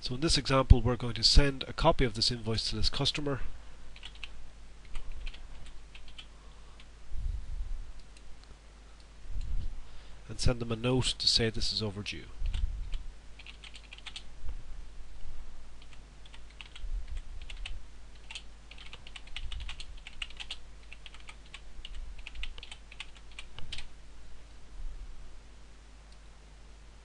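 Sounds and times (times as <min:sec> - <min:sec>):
keyboard typing clicks: 0:04.0 - 0:06.3, 0:17.4 - 0:23.9.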